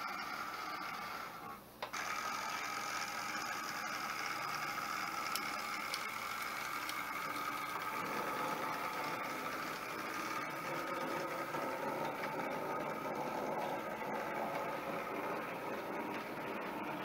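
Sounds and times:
model train motor whirring: 0.0s - 17.0s
wheel noise: 0.0s - 17.0s.

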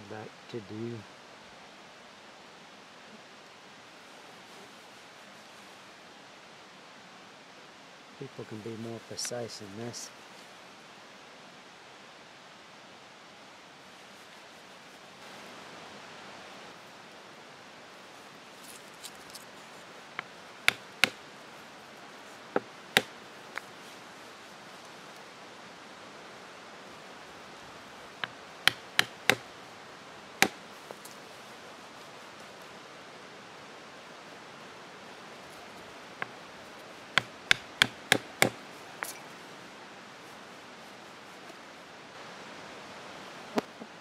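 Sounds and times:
steady background hiss: 0.0s - 44.0s
awl tapping through leather: 20.2s - 21.2s, 28.2s - 29.4s, 37.1s - 39.2s.

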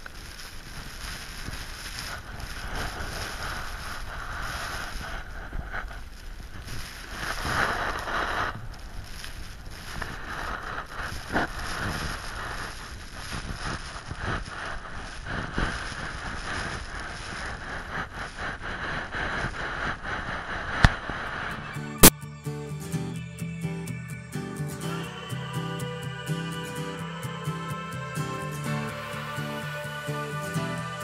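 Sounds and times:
wind gusting across microphone: 0.0s - 22.1s
blown sand hissing: 0.0s - 31.0s.

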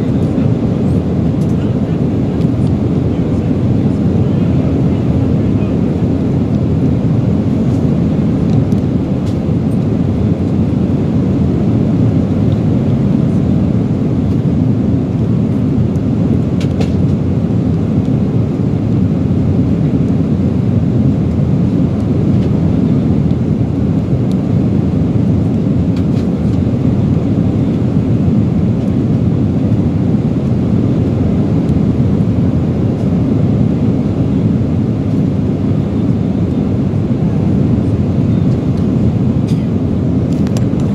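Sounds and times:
airliner cabin roar: 0.0s - 40.9s.

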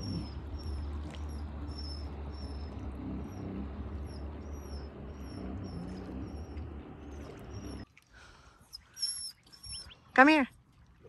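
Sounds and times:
wind buffeting microphone: 0.0s - 7.8s
small bird chirping: 8.8s - 10.1s.

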